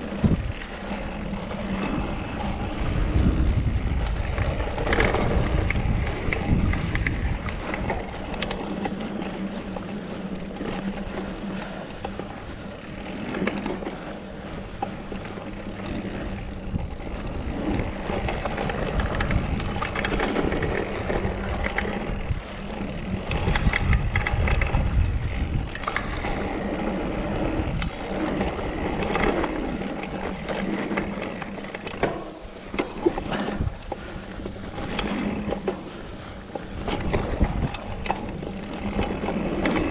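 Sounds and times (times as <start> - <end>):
wind buffeting microphone: 0.0 - 11.0, 15.4 - 39.9
bike frame clattering over bumps: 14.6 - 26.4, 27.0 - 39.9.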